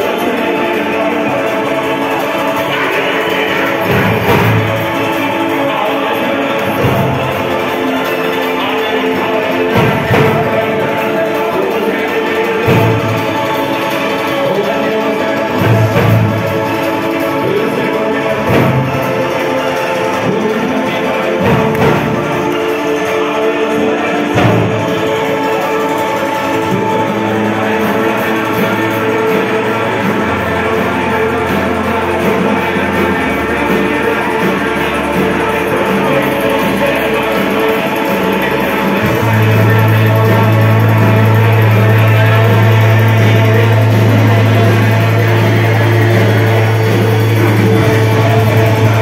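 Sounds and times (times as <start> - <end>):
live band playing loud music: 0.0 - 49.0.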